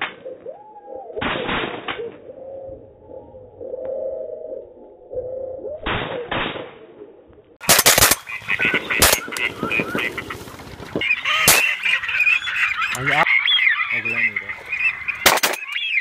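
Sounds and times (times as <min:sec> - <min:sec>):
shotgun shots: 0:07.6 - 0:09.4, 0:11.5 - 0:11.8, 0:15.2 - 0:15.7
waterfowl calling: 0:08.1 - 0:16.0.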